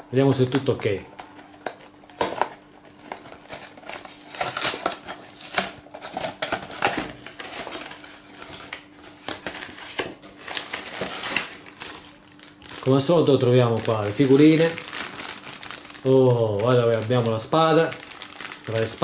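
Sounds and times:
plastic bags rustling: 0:00.2 - 0:19.0
cardboard flap tearing: 0:01.5 - 0:12.9.

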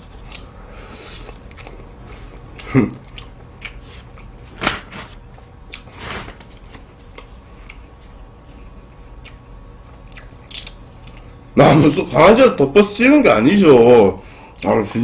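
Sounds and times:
paper napkin rustle: 0:03.8 - 0:05.2, 0:05.8 - 0:07.0.

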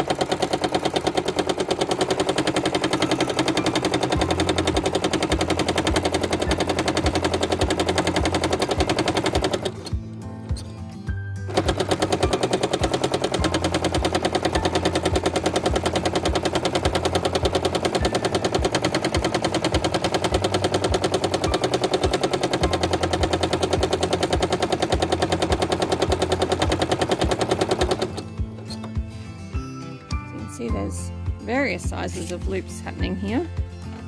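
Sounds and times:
sewing machine running fast: 0:00.0 - 0:10.0, 0:11.5 - 0:28.3.

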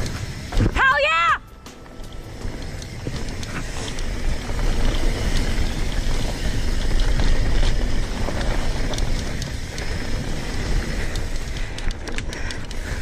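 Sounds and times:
bike ticking and rattling: 0:00.0 - 0:13.0
tyres on dirt: 0:00.0 - 0:13.0.

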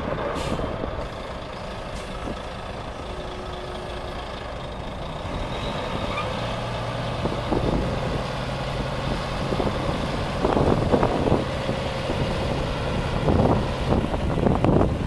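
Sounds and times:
truck diesel engine running: 0:00.0 - 0:15.0
wind buffeting microphone: 0:06.8 - 0:15.0.

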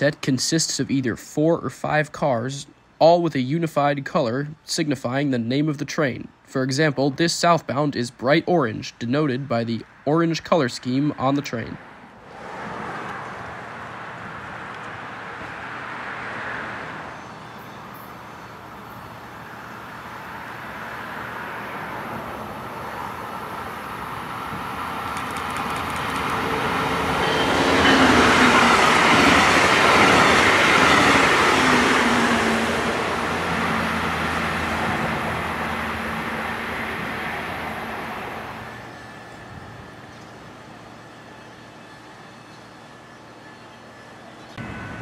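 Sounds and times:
train passing at speed: 0:11.7 - 0:45.0.

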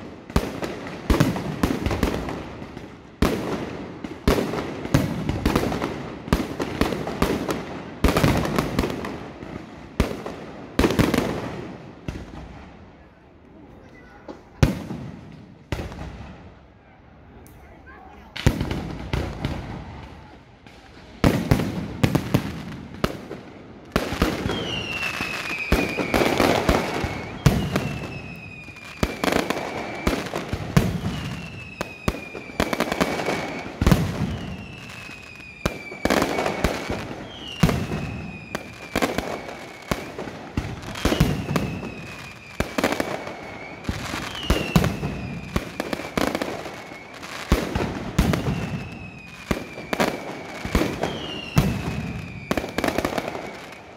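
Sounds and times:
fireworks bangs and crackle: 0:00.0 - 0:16.8, 0:17.9 - 0:53.9
descending firework whistle: 0:24.3 - 0:53.9.

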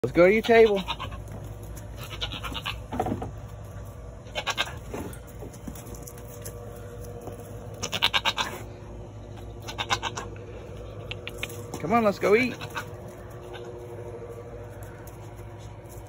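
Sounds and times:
goat bleating: 0:00.1 - 0:03.1, 0:04.2 - 0:05.3, 0:07.6 - 0:15.5.

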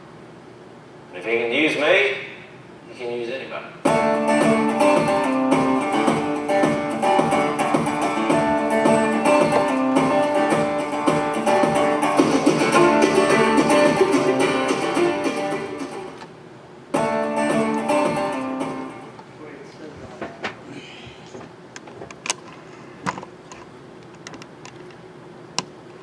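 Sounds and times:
instrumental guitar music: 0:03.8 - 0:16.2, 0:16.9 - 0:19.2.

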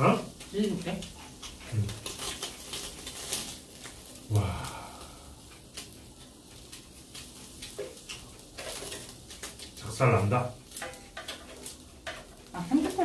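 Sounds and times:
meat crackling on a grill: 0:00.0 - 0:13.0
person humming while eating: 0:04.3 - 0:04.9.

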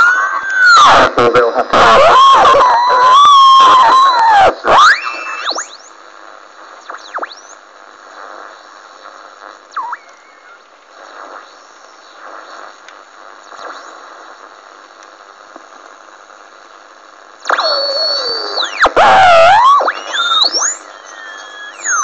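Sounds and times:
whistling squeals sweeping in pitch: 0:00.0 - 0:01.0, 0:02.0 - 0:05.8, 0:17.6 - 0:22.0
radio receiver hiss: 0:00.0 - 0:22.0.

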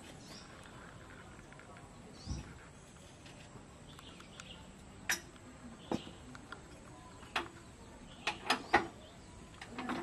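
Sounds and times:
sharp metallic clicks and knocks: 0:04.0 - 0:07.6, 0:08.2 - 0:10.0.

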